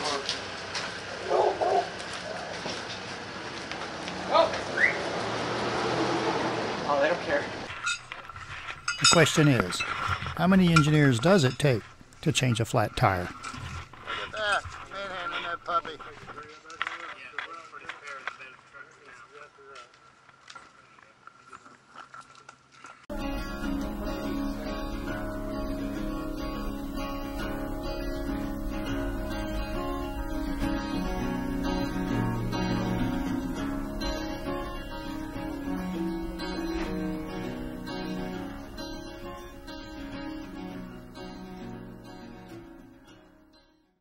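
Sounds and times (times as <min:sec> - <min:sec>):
strummed acoustic guitar music: 0:07.7 - 0:16.3, 0:23.1 - 0:43.9.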